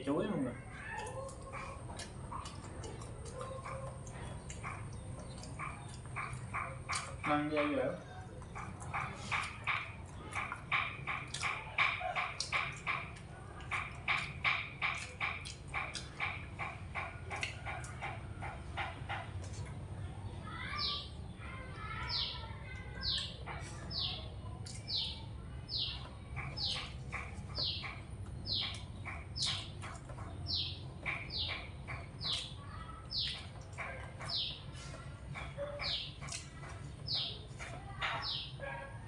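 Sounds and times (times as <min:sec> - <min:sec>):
mouth clicks from chewing: 0:00.8 - 0:07.2, 0:08.4 - 0:19.8, 0:24.6 - 0:25.2, 0:33.2 - 0:36.8.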